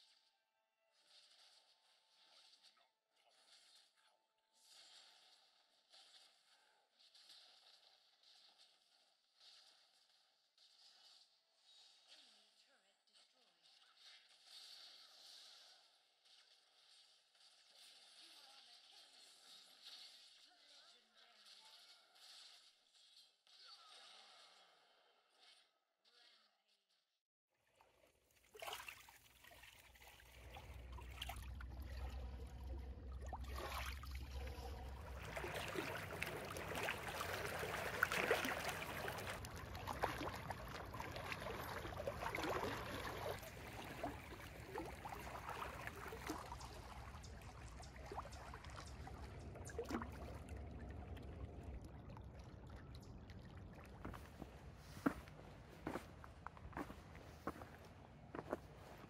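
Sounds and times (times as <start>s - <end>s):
small waves lapping on rocks: 28.4s - 51.2s
footsteps on forest floor: 54.0s - 59.0s.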